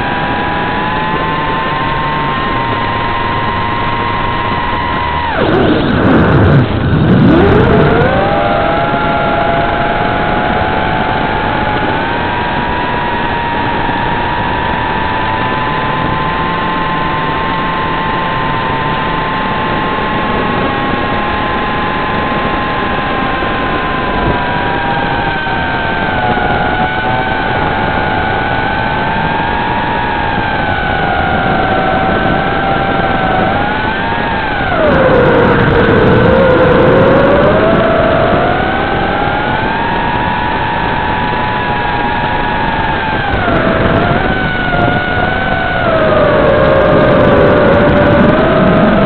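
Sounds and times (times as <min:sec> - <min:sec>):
drone motors whining: 0:00.0 - 0:49.0.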